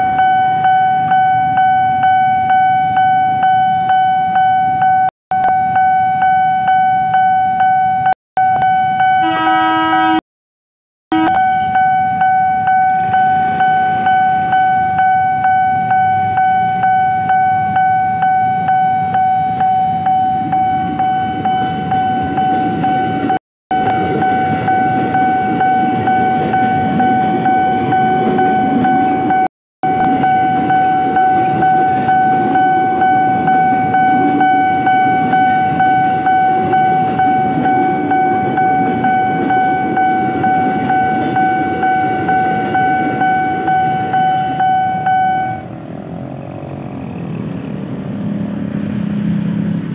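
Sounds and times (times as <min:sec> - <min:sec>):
level crossing bell dinging: 0:11.1 - 0:45.6
electric train rumbling past: 0:11.4 - 0:49.9.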